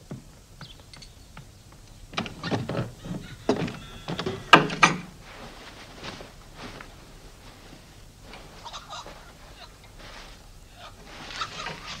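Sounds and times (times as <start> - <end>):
wooden door shutting: 2.1 - 5.2.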